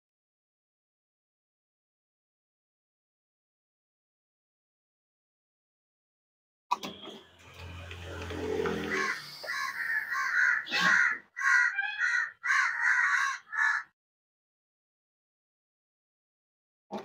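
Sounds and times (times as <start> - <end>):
vacuum pump humming: 7.4 - 9.3
crow cawing: 8.7 - 13.9.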